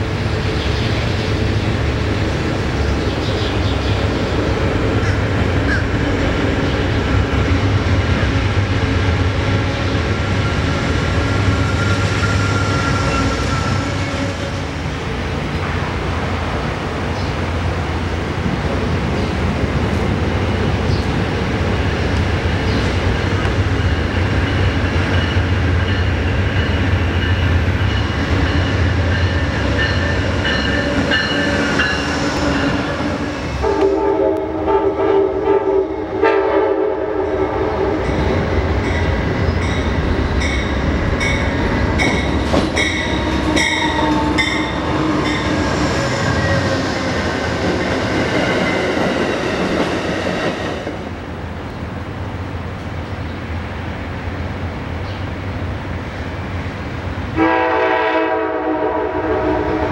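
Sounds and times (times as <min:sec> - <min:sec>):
passing train rumble: 0:00.0 - 0:59.9
locomotive horn: 0:11.4 - 0:14.7, 0:32.5 - 0:38.2, 0:57.4 - 0:59.9.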